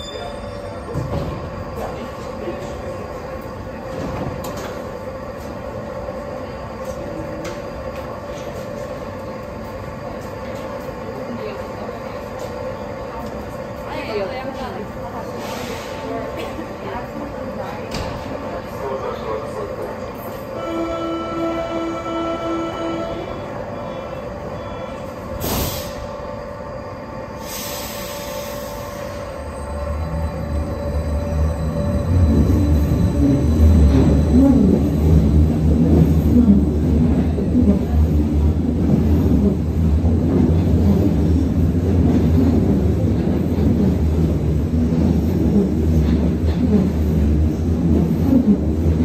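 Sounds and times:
train hum with constant tone: 0.0s - 49.0s
air brake hiss: 15.4s - 16.1s, 25.4s - 26.1s, 27.4s - 29.2s.

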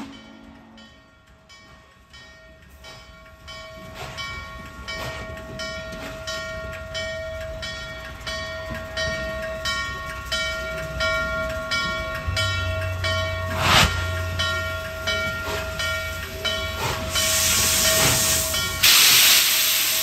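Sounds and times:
steam locomotive rumble: 0.0s - 20.0s.

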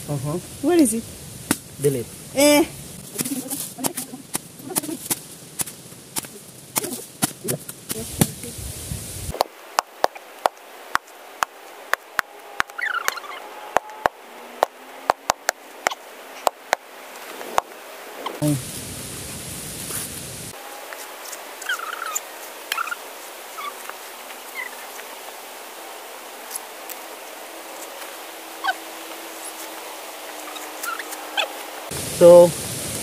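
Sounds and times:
machete chopping coconut husk: 1.5s - 1.7s, 3.0s - 8.4s.

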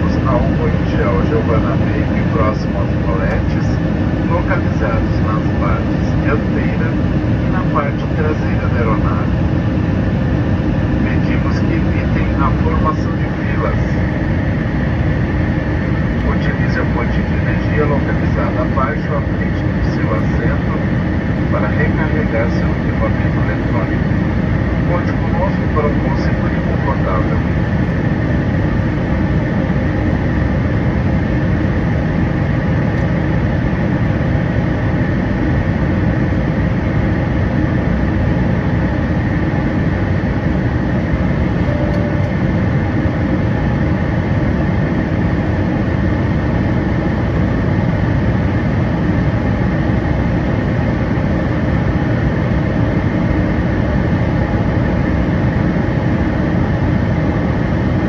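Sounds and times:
airplane cabin roar: 0.0s - 58.0s
faint steady tones: 41.4s - 43.0s.

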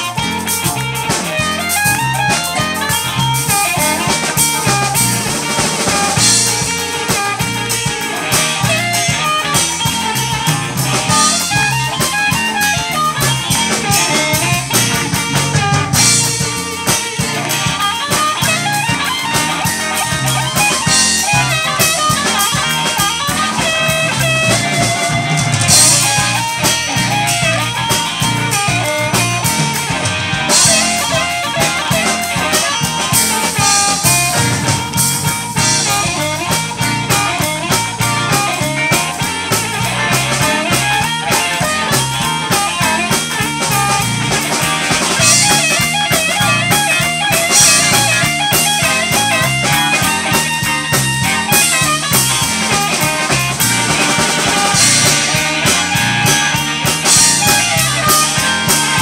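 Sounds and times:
amplified harmonica: 0.0s - 59.0s
blues band playing: 0.0s - 59.0s
drum kit steady beat: 0.0s - 59.0s
guitar: 0.0s - 59.0s.

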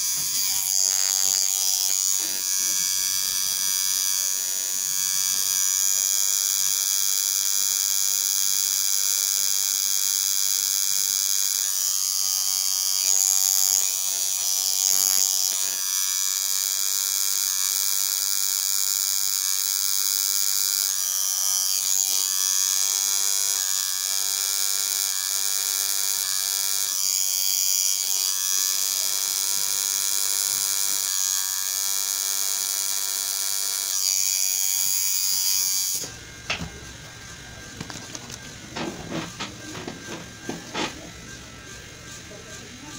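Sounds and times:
tattoo machine buzzing: 0.0s - 42.9s.

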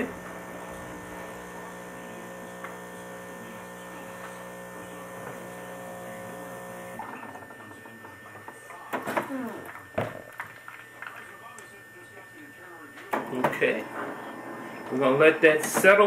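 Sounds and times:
espresso machine pump humming: 0.0s - 16.0s.

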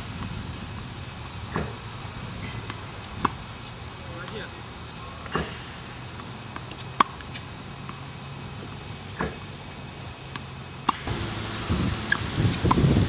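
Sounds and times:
tennis ball impacts: 0.2s - 1.8s, 5.2s - 9.5s, 10.2s - 13.0s
low steady hum: 4.5s - 13.0s.

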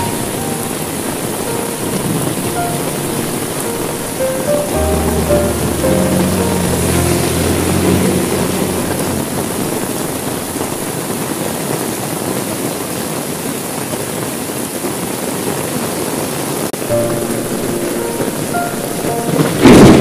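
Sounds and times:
faint music notes: 0.0s - 11.3s, 16.8s - 20.0s
heavy rain hissing: 0.0s - 13.2s, 16.8s - 20.0s.

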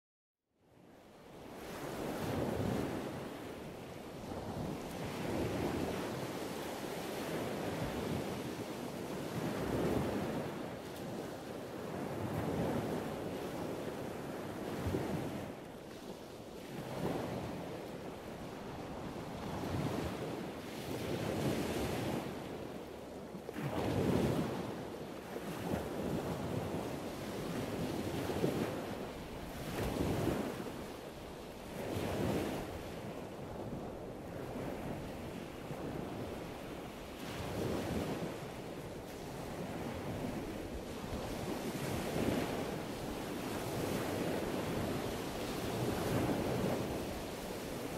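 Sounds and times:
wind: 0.4s - 47.9s.

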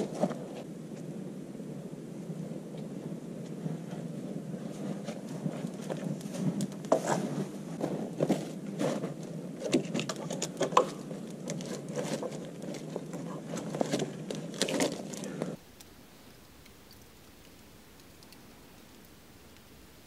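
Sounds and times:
crackling clicks: 9.2s - 20.0s.

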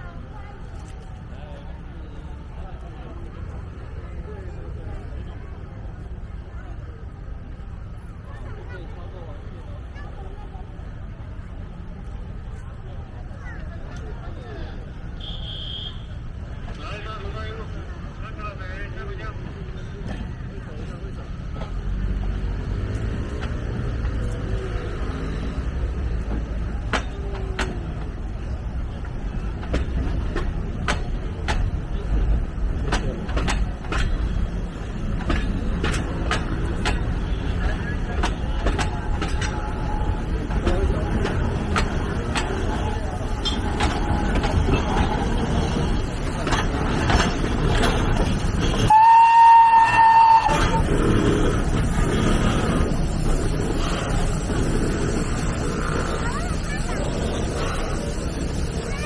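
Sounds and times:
steam train rumbling on track: 0.0s - 59.0s
steam locomotive whistle: 15.2s - 16.2s, 48.8s - 50.9s
sharp clacks of train wheels: 19.4s - 59.0s.

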